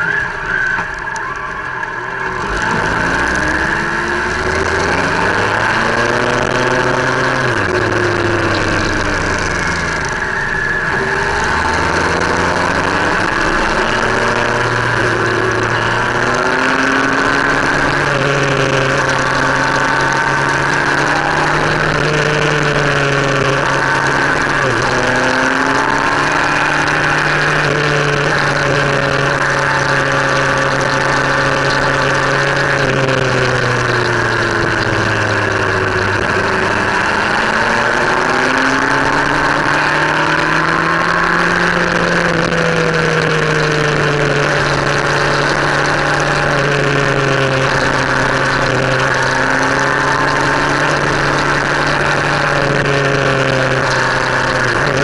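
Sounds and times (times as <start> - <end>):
wind and road noise: 0.0 - 55.0
motorcycle engine running: 2.4 - 55.0.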